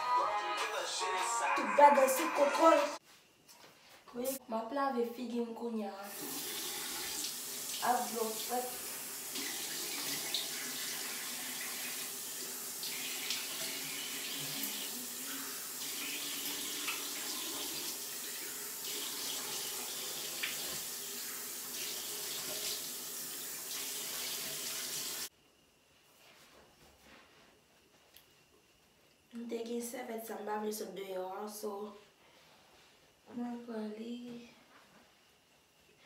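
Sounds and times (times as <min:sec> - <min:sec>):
tap water running: 0:06.1 - 0:25.3.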